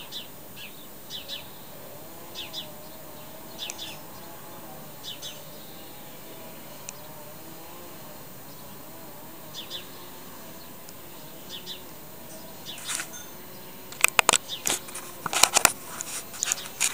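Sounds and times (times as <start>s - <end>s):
birds chirping: 0.0s - 16.9s
distant mower engine droning: 0.0s - 16.9s
sharp clicks and knocks: 13.9s - 16.9s.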